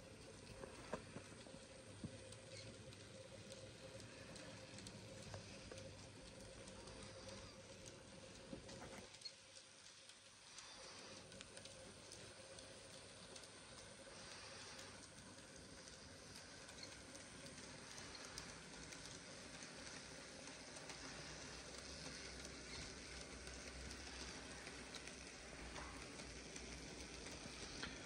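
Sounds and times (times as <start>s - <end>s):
steam locomotive running: 0.0s - 28.0s
wheels ticking on track: 0.1s - 28.0s.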